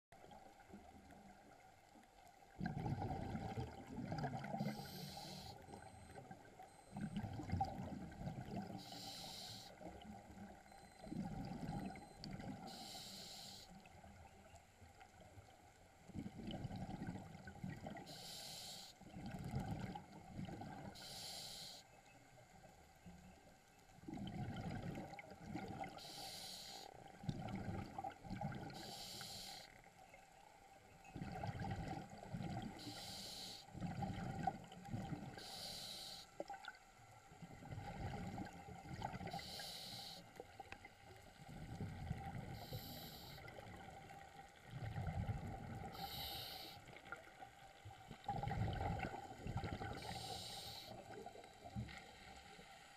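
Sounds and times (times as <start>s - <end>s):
rumbling exhalation bubbles: 2.6s - 4.6s, 48.3s - 50.0s
diver inhaling hiss: 4.6s - 5.6s, 8.8s - 9.7s, 12.7s - 13.7s, 18.1s - 19.0s, 21.0s - 21.8s, 26.0s - 26.9s, 28.8s - 29.7s, 32.8s - 33.7s, 35.4s - 36.3s, 39.3s - 40.2s, 42.6s - 43.4s, 45.9s - 46.8s, 50.0s - 51.0s.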